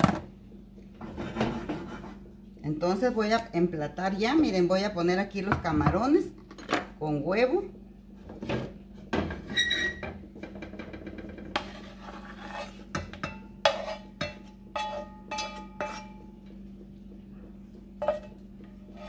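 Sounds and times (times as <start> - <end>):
spoon scraping skillet: 11.4 - 16.2, 18.0 - 19.0.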